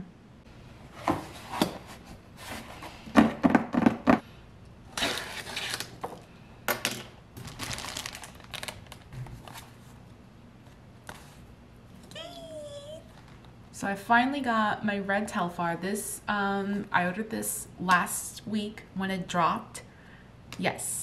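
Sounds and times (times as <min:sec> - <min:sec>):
plastic wrapping crinkling: 0:07.4 - 0:09.8.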